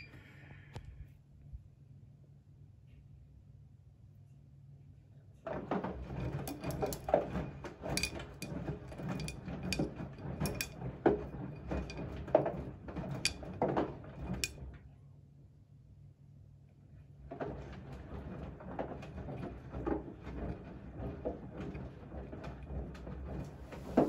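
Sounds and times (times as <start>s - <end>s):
washing machine drum tumbling: 5.6s - 14.7s, 17.3s - 24.0s.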